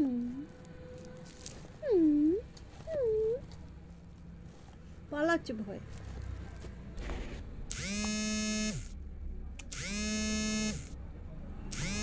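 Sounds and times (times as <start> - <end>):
electric buzz rising and falling: 7.7 - 9.0, 9.7 - 10.9, 11.7 - 12.0.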